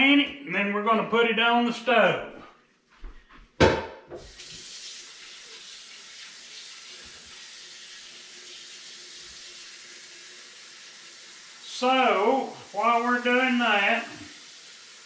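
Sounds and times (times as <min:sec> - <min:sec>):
sharp knock: 0:03.6 - 0:04.2
faucet running into metal pot: 0:04.2 - 0:15.0.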